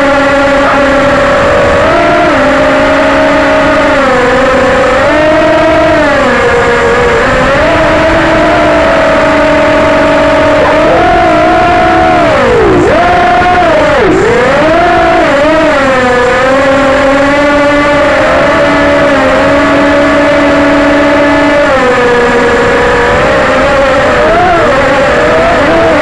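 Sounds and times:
drone propellers buzzing: 0.0 - 26.0.

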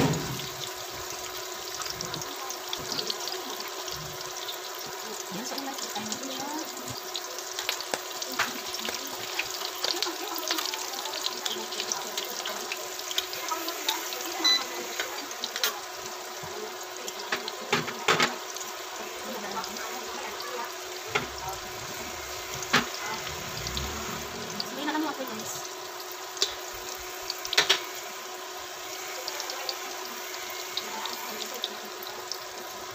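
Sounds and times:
food sizzling in oil: 0.0 - 32.9
metal tongs clicking on pan: 13.8 - 15.8.

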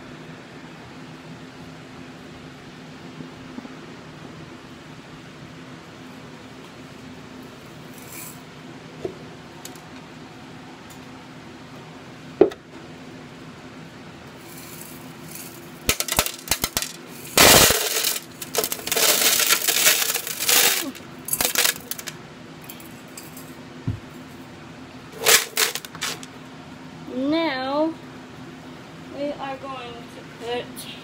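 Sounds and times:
gravel clattering into glass tank: 14.6 - 22.1
stones rattling: 15.9 - 22.1.

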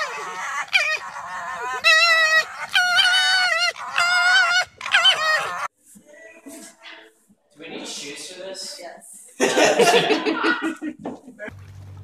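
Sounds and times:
animal calling: 0.0 - 5.7.

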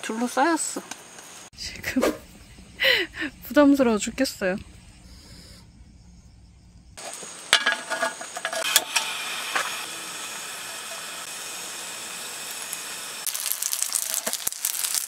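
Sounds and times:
meat sizzling in a frying pan: 7.0 - 15.0.

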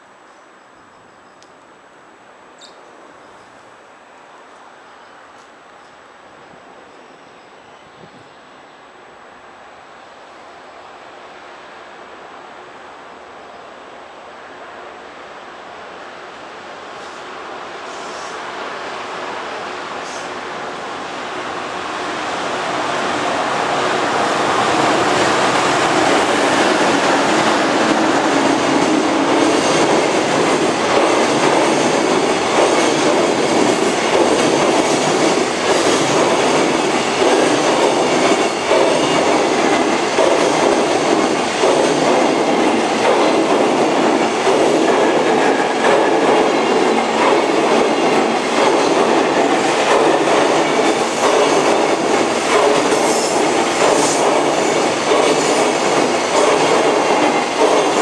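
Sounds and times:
steel wheels on rails: 22.3 - 58.0.

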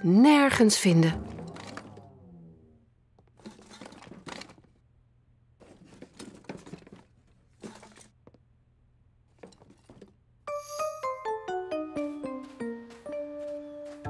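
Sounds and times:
rummaging rustling and knocking: 1.2 - 2.2, 3.2 - 4.8, 5.6 - 8.5, 9.2 - 10.3.

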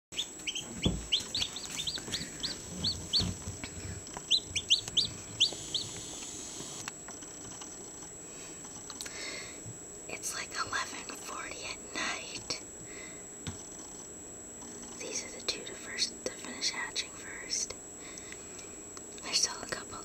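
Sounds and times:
chicks peeping: 0.2 - 6.8
faint high whine: 0.2 - 20.0.

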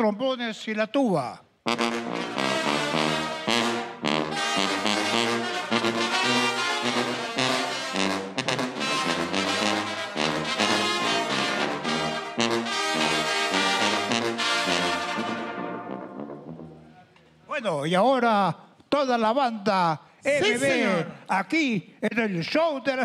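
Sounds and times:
brass band playing: 1.6 - 17.0.

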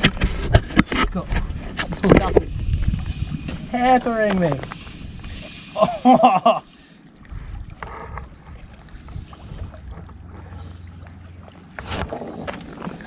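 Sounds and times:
wind noise: 0.0 - 6.0, 7.2 - 10.4
water at shore: 0.0 - 13.0.

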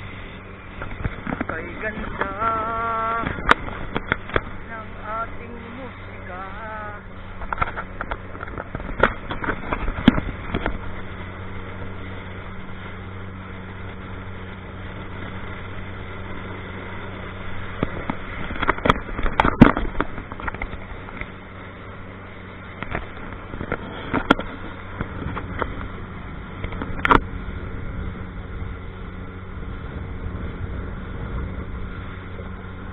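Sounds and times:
motorboat engine running: 0.0 - 32.9
rushing water and wind: 0.0 - 32.9
boat hull knocking on waves: 0.7 - 6.7, 7.3 - 11.0, 17.6 - 21.5, 22.6 - 27.4.

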